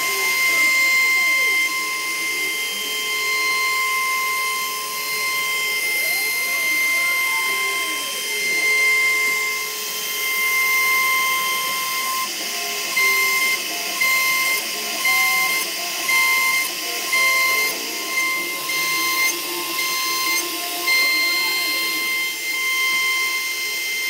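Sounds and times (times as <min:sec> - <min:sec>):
router spindle whining: 0:00.0 - 0:24.0.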